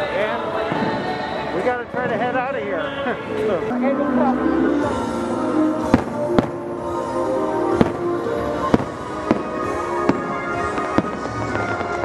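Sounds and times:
music playing: 0:00.0 - 0:12.0
fireworks bangs: 0:00.6 - 0:02.8, 0:04.8 - 0:12.0.

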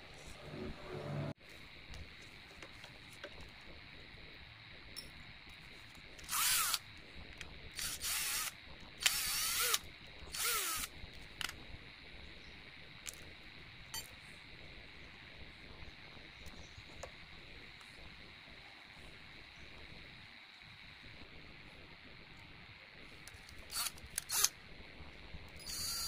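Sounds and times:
cordless drill spinning: 0:06.2 - 0:06.9, 0:07.7 - 0:11.5, 0:23.3 - 0:24.5, 0:25.6 - 0:26.0.

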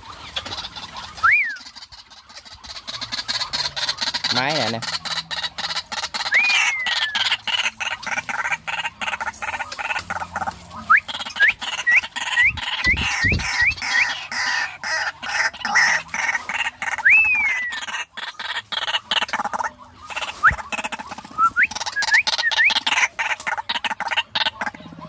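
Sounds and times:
birds clicking calls: 0:00.0 - 0:25.0
short rising whistles: 0:01.2 - 0:01.6, 0:17.0 - 0:17.8
descending bird whistle: 0:01.2 - 0:01.7, 0:06.3 - 0:07.3, 0:10.9 - 0:14.2, 0:17.0 - 0:17.9, 0:20.4 - 0:20.7, 0:21.3 - 0:22.8.

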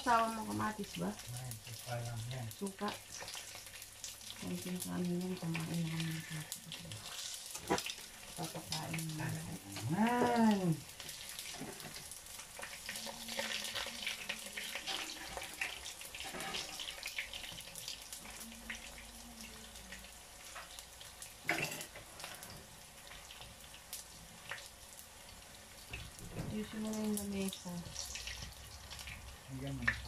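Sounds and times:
fish sizzling in oil: 0:00.0 - 0:30.0
utensil scraping a pan: 0:11.1 - 0:17.6.

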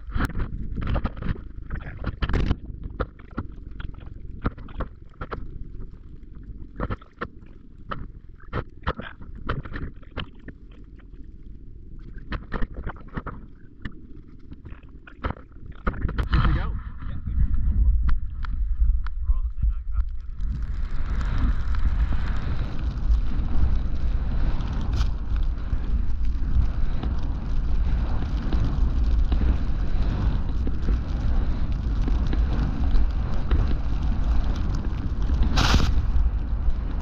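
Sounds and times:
wind on microphone: 0:15.8 - 0:37.0
skis hissing in snow: 0:21.0 - 0:36.6.

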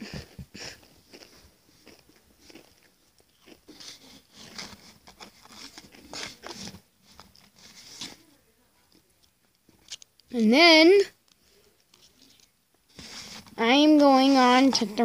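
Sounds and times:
crisps crunching while chewing: 0:00.2 - 0:07.6.

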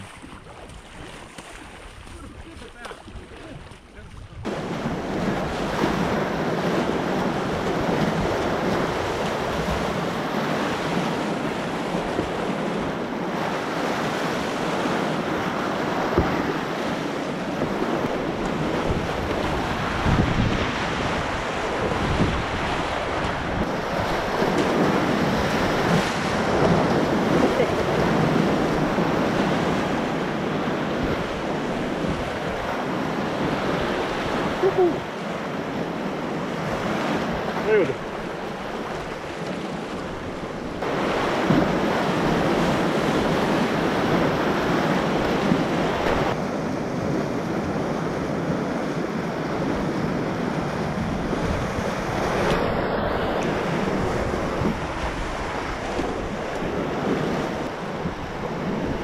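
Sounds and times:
whitewater rapids rushing: 0:36.7 - 0:46.4.

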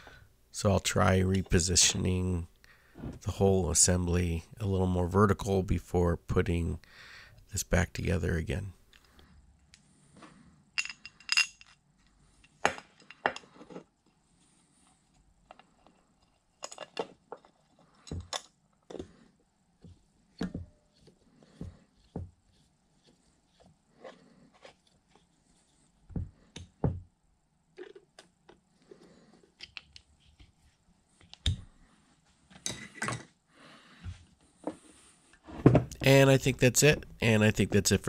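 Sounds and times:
metal parts clinking and tapping: 0:10.8 - 0:11.8, 0:12.4 - 0:13.6, 0:15.5 - 0:18.6.

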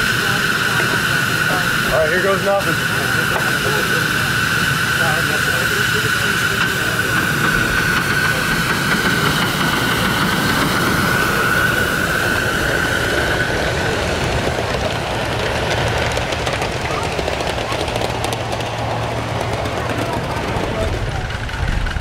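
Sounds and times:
high-pitched steam hiss: 0:00.0 - 0:15.4
train rolling on rails: 0:00.0 - 0:22.0.

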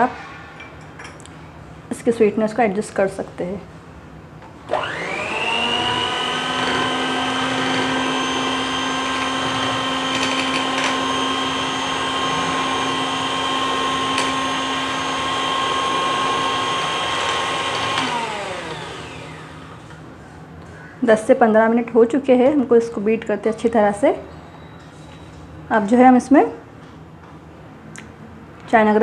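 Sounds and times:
electric hand mixer whirring: 0:04.6 - 0:19.9.

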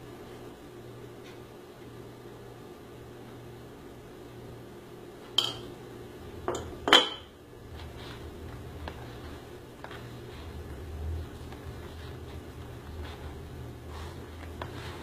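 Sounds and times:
hands kneading dough in bowl: 0:07.6 - 0:15.0.

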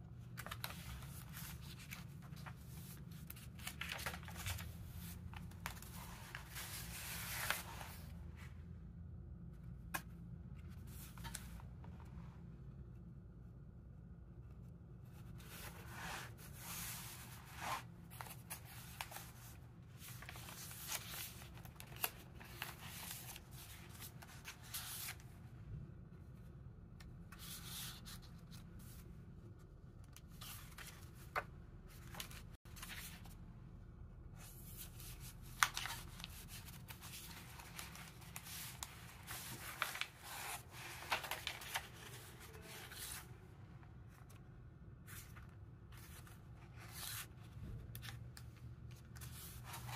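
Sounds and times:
paper pages rustling: 0:00.2 - 0:08.2, 0:09.9 - 0:12.0, 0:15.2 - 0:25.3, 0:30.0 - 0:33.4, 0:34.5 - 0:43.3, 0:45.0 - 0:49.9.

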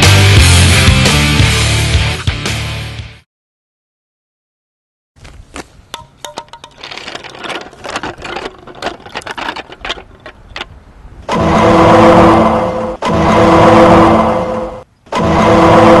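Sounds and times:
toy car rattling over asphalt: 0:05.9 - 0:11.2
loud engine-like drone: 0:11.3 - 0:16.0.

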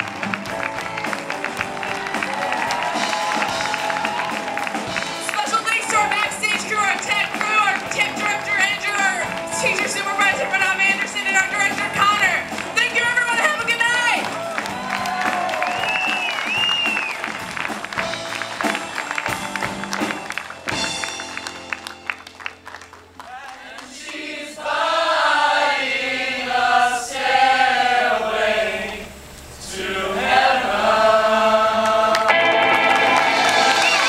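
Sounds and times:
audience applause: 0:00.0 - 0:25.2, 0:31.0 - 0:34.0
choir singing: 0:23.3 - 0:34.0.

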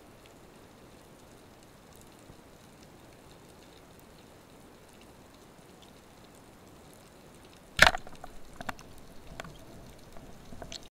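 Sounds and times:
faint clicks: 0:07.4 - 0:10.9
speargun firing crack: 0:07.8 - 0:08.8.

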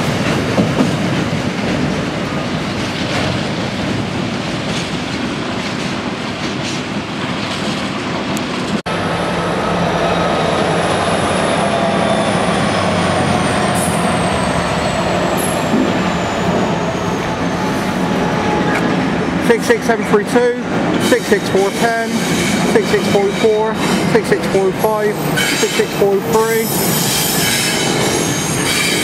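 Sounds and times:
freight wagons rumbling and clattering: 0:00.0 - 0:08.0
diesel locomotives passing: 0:00.0 - 0:29.0.

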